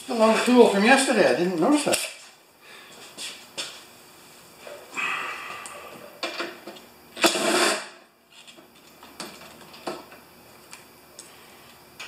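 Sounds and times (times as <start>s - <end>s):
cordless drill burst: 7.2s - 7.8s.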